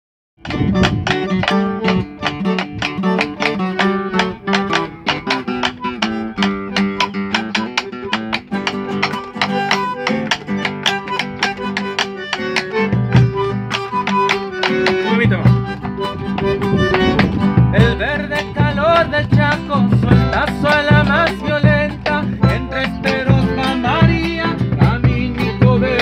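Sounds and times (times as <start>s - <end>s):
bandoneon held tones: 0.4s - 19.0s
acoustic guitar plucked notes: 0.4s - 26.0s.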